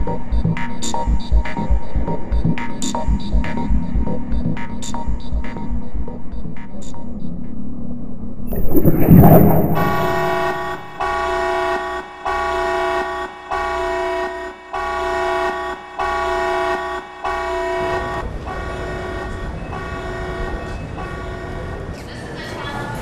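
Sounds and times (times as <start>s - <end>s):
low rumble: 8.5s - 11.0s.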